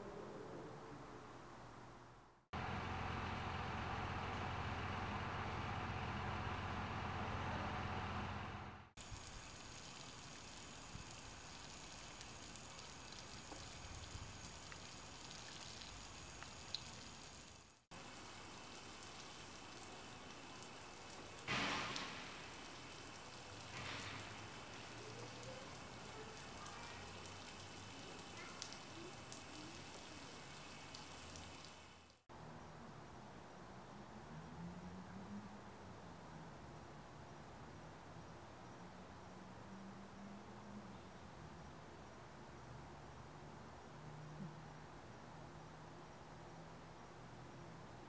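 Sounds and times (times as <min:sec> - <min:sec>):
rain on paving stones: 0:09.0 - 0:32.2.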